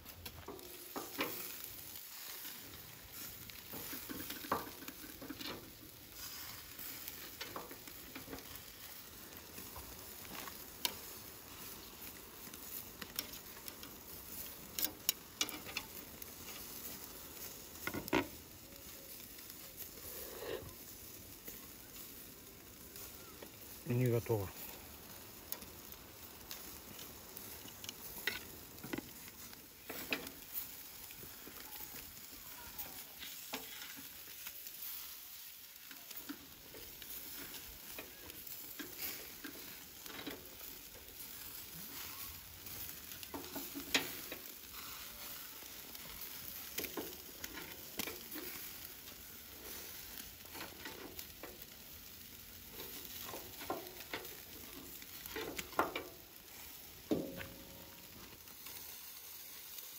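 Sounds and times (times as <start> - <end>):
meat sizzling over charcoal: 0.0 - 59.9
metal skewers clicking: 13.0 - 17.0.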